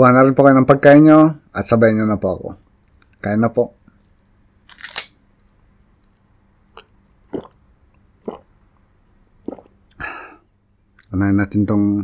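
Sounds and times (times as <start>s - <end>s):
person swallowing: 6.8s - 7.6s, 8.2s - 8.6s, 9.4s - 10.3s
person sipping water: 6.8s - 8.6s, 9.4s - 10.4s.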